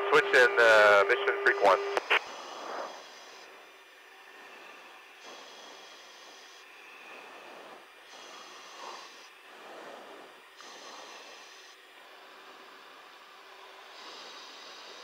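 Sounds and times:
intercom radio hiss: 0.0 - 3.6.

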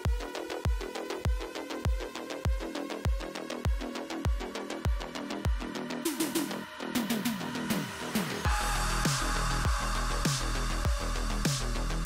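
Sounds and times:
kick drum: 0.0 - 5.7, 8.5 - 11.6
deep sustained bass: 7.5 - 12.0
descending synth notes: 7.6 - 12.0.

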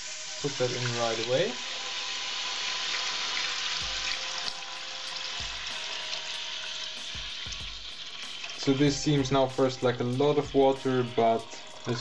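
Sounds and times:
water pouring into metal pot: 0.0 - 12.0.

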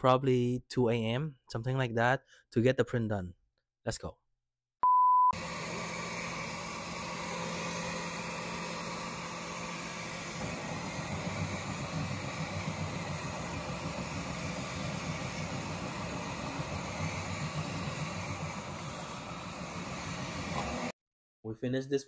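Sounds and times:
printer fans and motors humming: 5.4 - 20.9.

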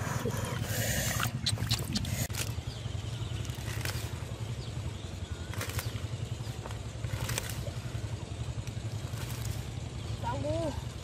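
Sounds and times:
low motor-like hum: 0.0 - 11.0.

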